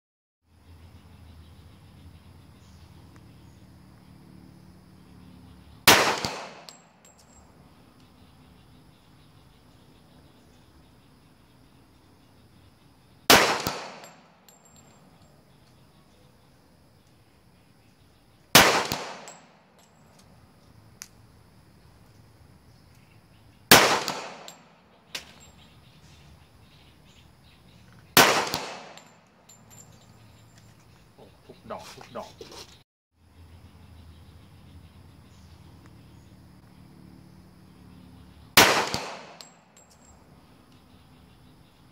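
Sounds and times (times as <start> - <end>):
pistol shot with echo: 5.8 - 6.9, 13.3 - 14.6, 18.5 - 19.6, 23.7 - 25.4, 28.2 - 29.2, 38.6 - 39.8.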